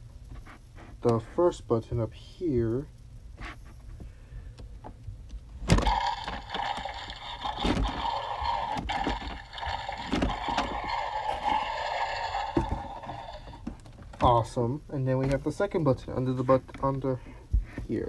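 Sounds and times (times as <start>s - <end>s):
toy dinosaur electronic roar: 5.8s - 13.7s.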